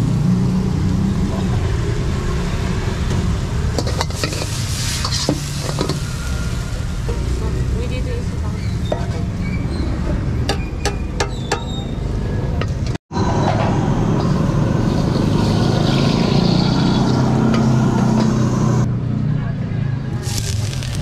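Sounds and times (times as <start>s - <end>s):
sizzling in wok: 0.7s - 9.8s, 20.2s - 21.0s
gas burner rushing: 2.9s - 7.2s.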